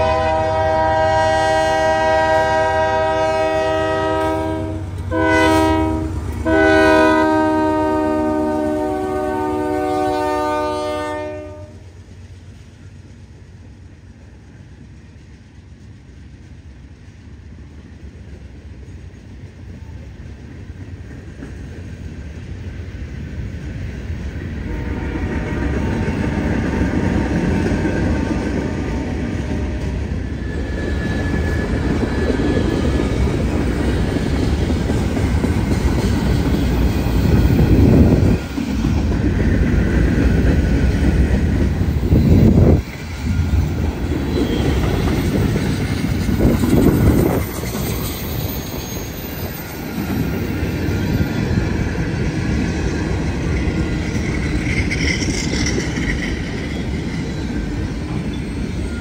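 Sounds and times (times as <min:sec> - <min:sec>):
locomotive horn chord: 0:00.0 - 0:11.8, 0:24.6 - 0:25.9
freight train rumble and wheel clatter: 0:00.0 - 0:59.0.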